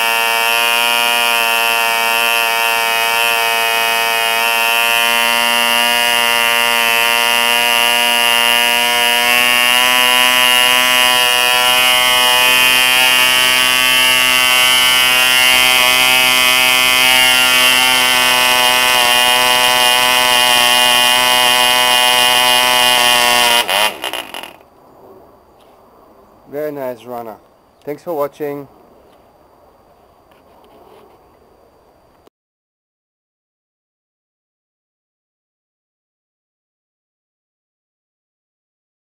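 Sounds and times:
model engine buzzing: 0.0 - 24.6.

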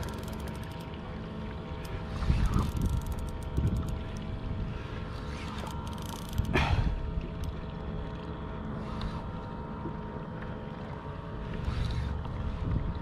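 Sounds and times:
faint steady hum: 0.0 - 13.0
water against kayak: 0.0 - 13.0
wind on microphone: 2.0 - 4.8, 12.2 - 13.0.

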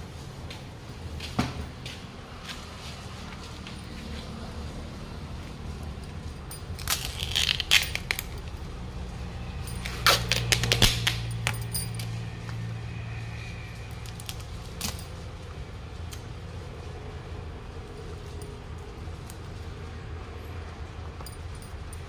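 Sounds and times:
metallic clinks and knocks: 5.7 - 12.8, 14.0 - 15.6, 21.0 - 22.0.

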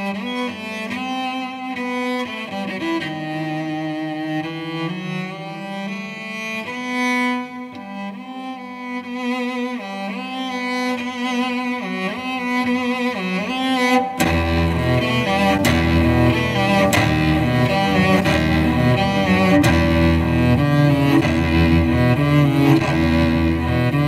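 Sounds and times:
cello slow melody: 0.0 - 24.0
deep bass: 14.2 - 24.0.

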